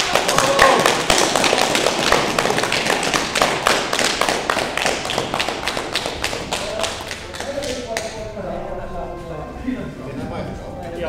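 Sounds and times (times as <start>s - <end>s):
people clapping in a hall: 0.0s - 8.3s.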